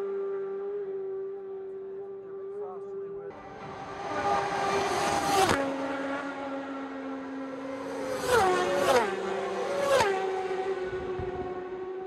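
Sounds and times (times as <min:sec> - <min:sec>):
racing motorcycles passing at speed: 0:00.0 - 0:12.0.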